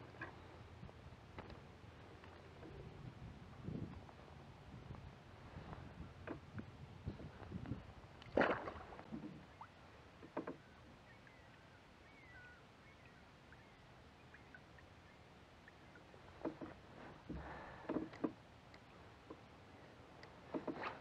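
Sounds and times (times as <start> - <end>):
light water noise: 0.0 - 21.0
kayak and paddle clunks: 6.0 - 6.7, 7.6 - 11.4, 15.6 - 19.5, 20.2 - 21.0.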